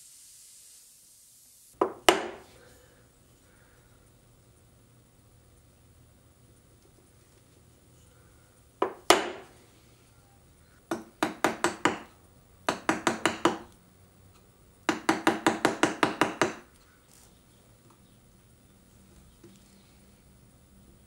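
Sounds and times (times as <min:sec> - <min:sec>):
mallet tapping a chisel: 0:01.8 - 0:02.5, 0:08.8 - 0:09.5, 0:10.9 - 0:12.1, 0:12.7 - 0:13.8, 0:14.9 - 0:16.7.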